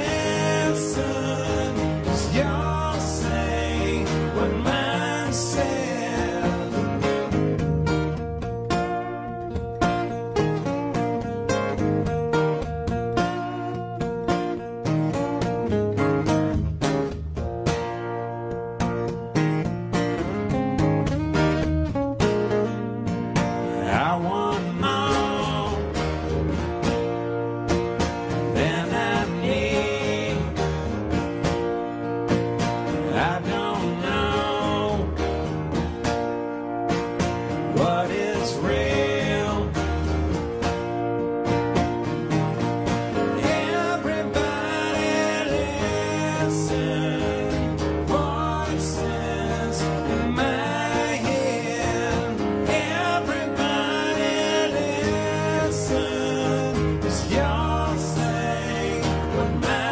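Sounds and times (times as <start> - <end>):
person singing: 0.0 - 7.3, 23.7 - 26.4, 28.3 - 31.2, 33.0 - 35.6, 37.7 - 40.4, 43.2 - 59.9
acoustic guitars strumming chords: 0.0 - 59.9.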